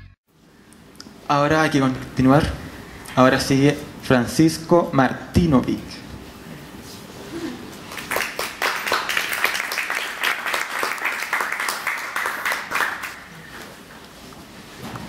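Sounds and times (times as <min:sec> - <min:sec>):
audience applauding: 0:07.9 - 0:13.3.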